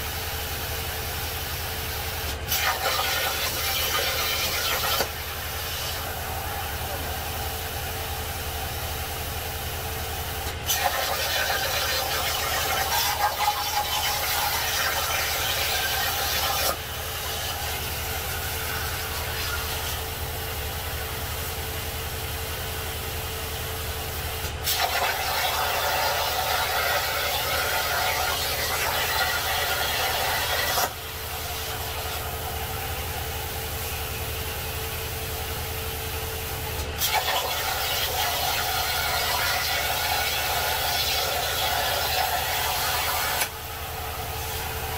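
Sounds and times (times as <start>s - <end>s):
plasma cutter hissing and crackling: 2.0s - 8.9s, 10.3s - 20.3s, 24.6s - 33.2s, 36.7s - 44.8s
plasma cutter arc click: 2.3s - 6.0s, 10.4s - 16.8s, 24.6s - 31.0s, 36.8s - 43.6s.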